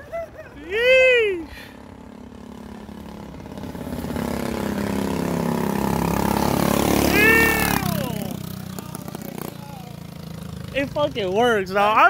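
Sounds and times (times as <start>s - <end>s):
mini bike engine passing: 0.0s - 12.0s
person shouting: 0.6s - 1.5s, 7.1s - 9.9s.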